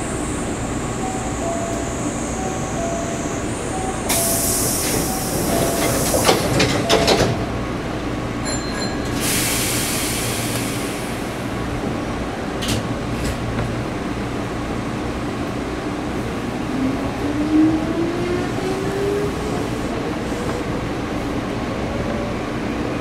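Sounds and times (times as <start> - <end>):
train low rumble: 0.0 - 23.0
air hiss: 4.1 - 6.5, 9.2 - 11.6.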